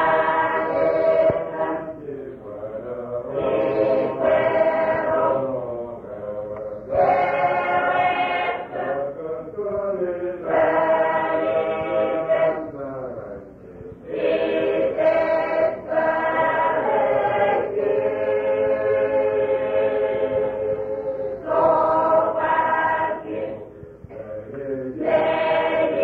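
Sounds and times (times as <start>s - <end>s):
choir singing slow chant: 0.0s - 26.0s
singers breathing: 13.5s - 14.1s, 20.9s - 21.5s.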